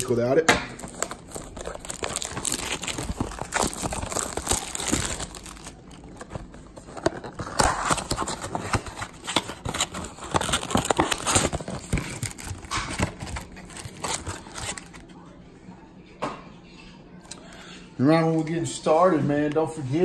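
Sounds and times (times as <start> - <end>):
packaging crinkling and tearing: 0.8 - 15.1.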